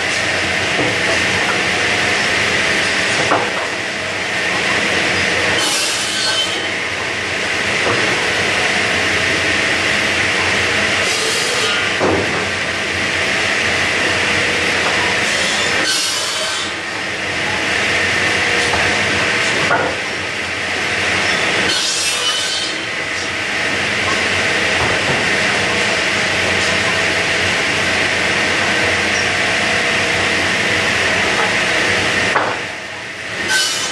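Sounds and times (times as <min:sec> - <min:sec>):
saw cutting through lumber: 0:04.9 - 0:06.9, 0:08.7 - 0:12.0, 0:13.6 - 0:20.0, 0:20.6 - 0:24.6, 0:33.4 - 0:33.9.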